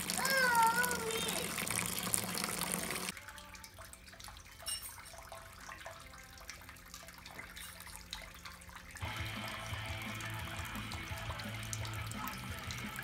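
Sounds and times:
light drips and ticks: 0:00.0 - 0:13.0
liquid trickling through hoses: 0:00.0 - 0:13.0
background music: 0:01.6 - 0:13.0.

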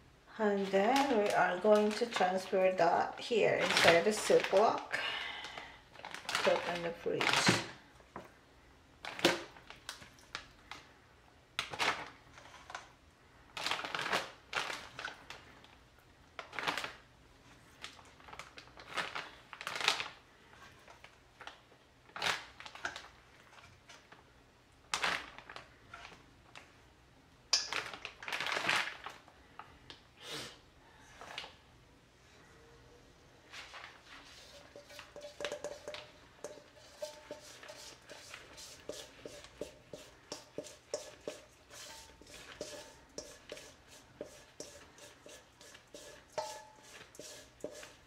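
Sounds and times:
plastic bag rustling: 0:03.4 - 0:07.8, 0:17.6 - 0:24.2, 0:27.7 - 0:29.3, 0:33.4 - 0:48.0.

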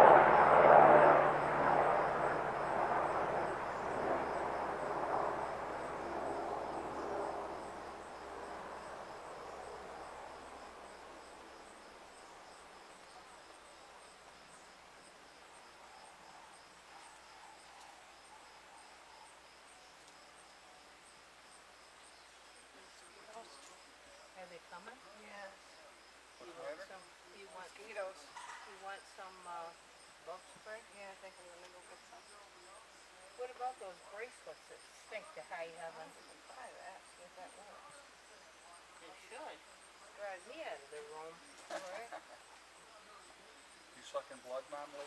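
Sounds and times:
passing engine drone: 0:00.0 - 0:11.8
insects chirping: 0:00.0 - 0:45.0.

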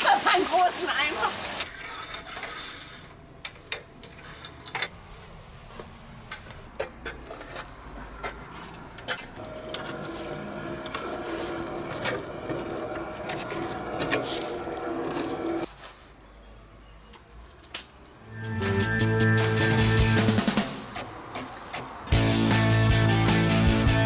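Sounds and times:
running gurgling water: 0:00.0 - 0:02.2, 0:09.4 - 0:15.7
wet leaves dug from gutter: 0:00.0 - 0:02.9, 0:07.2 - 0:16.1.

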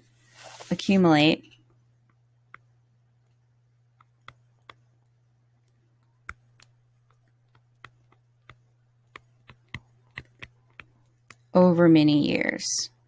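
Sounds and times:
faint low hum: 0:00.0 - 0:13.0
stylus tapping on tablet: 0:02.0 - 0:02.7, 0:03.9 - 0:11.5.

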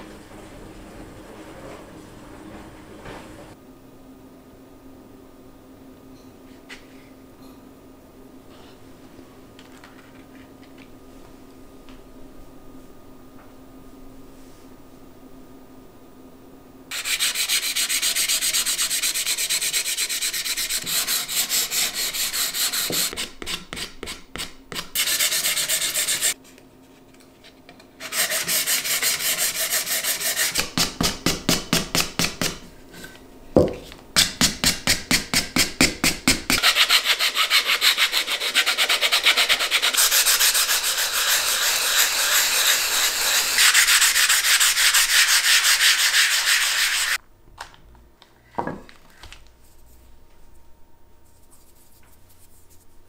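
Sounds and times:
sanding wood by hand: 0:16.9 - 0:26.4, 0:28.0 - 0:30.9, 0:34.8 - 0:47.2.

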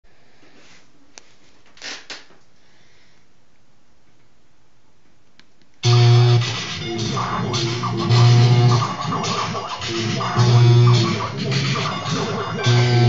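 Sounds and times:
loud guitar music: 0:05.8 - 0:13.0.

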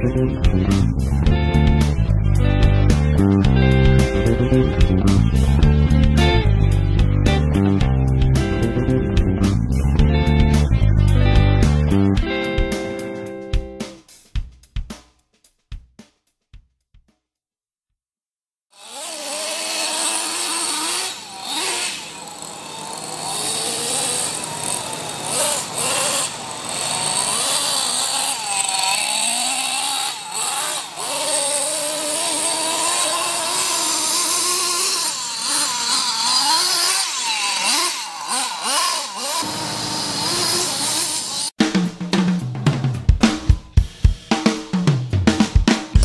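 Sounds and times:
nitro engine revving: 0:00.0 - 0:13.0, 0:18.8 - 0:41.6.

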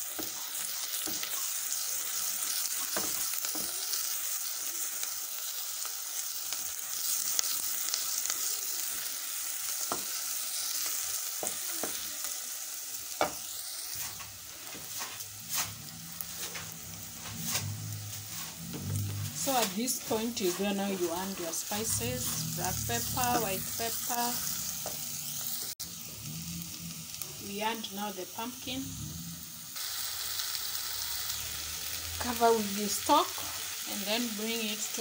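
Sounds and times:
shallots sizzling in fat: 0:00.0 - 0:35.0
spatula scraping a pot: 0:13.2 - 0:25.0.

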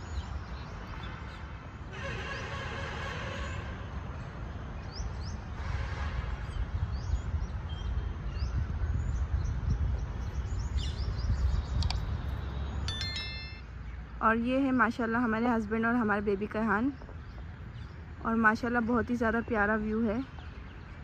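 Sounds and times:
small birds chirping: 0:00.0 - 0:01.8, 0:06.5 - 0:21.0.

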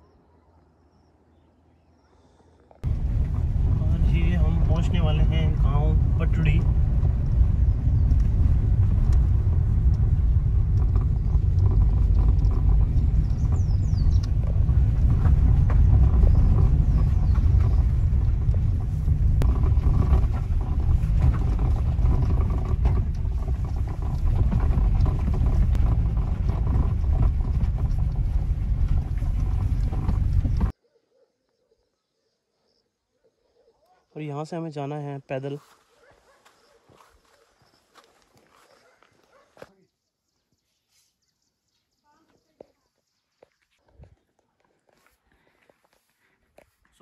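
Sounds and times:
vehicle road and wind rumble: 0:02.7 - 0:30.8.

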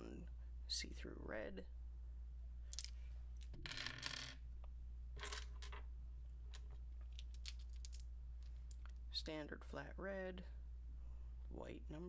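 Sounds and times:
plastic dice clattering on wooden desk: 0:02.7 - 0:04.4, 0:05.2 - 0:05.9, 0:06.5 - 0:08.8.

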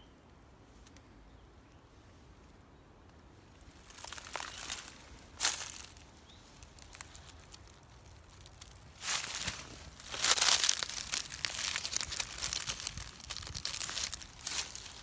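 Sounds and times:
footsteps crunching dry leaves: 0:03.6 - 0:15.0.

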